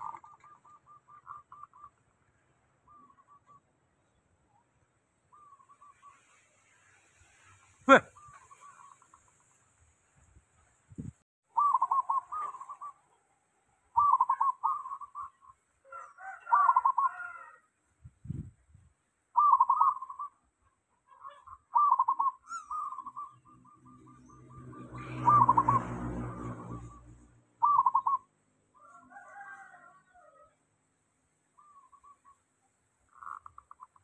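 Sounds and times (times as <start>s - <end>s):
dove cooing: 0.0s - 2.0s, 11.6s - 13.1s, 14.0s - 17.5s, 19.4s - 20.4s, 21.1s - 27.0s, 27.6s - 28.3s.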